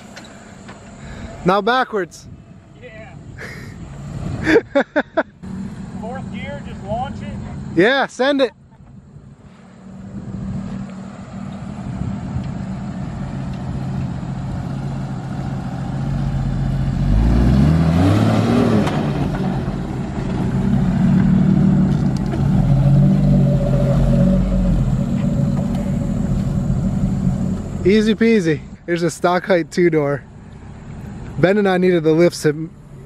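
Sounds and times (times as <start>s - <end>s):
car engine accelerating hard: 9.5s - 28.8s.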